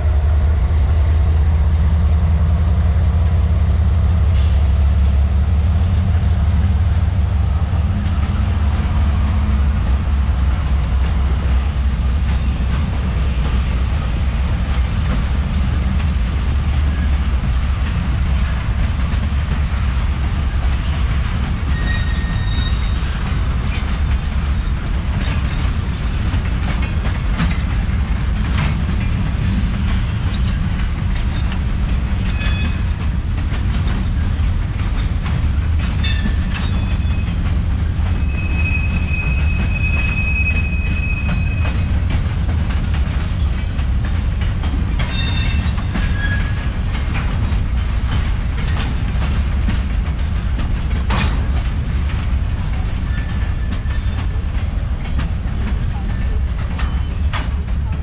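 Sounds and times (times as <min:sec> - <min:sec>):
freight train rumbling past: 0:00.0 - 0:58.0
wheels clicking over rail joints: 0:07.8 - 0:58.0
train wheel squeal: 0:12.2 - 0:12.8, 0:21.6 - 0:23.9, 0:24.5 - 0:27.6, 0:32.2 - 0:33.0, 0:35.9 - 0:42.0, 0:45.0 - 0:47.0, 0:52.8 - 0:54.4, 0:55.8 - 0:57.6.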